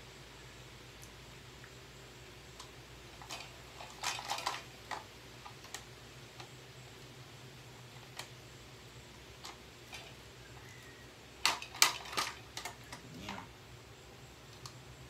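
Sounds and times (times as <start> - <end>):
parts and tools clicking: 11.4 - 13.0.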